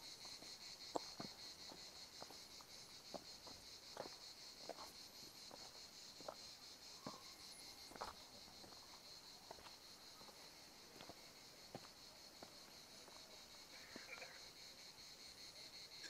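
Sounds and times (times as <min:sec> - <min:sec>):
footsteps on dirt trail: 0:00.2 - 0:14.3
insect trilling: 0:13.4 - 0:15.2.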